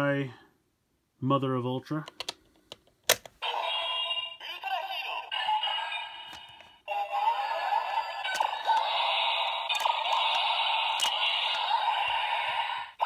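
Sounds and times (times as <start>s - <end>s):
sharp plastic click: 2.1s - 3.4s
toy electronic sound effects and music: 3.4s - 13.0s.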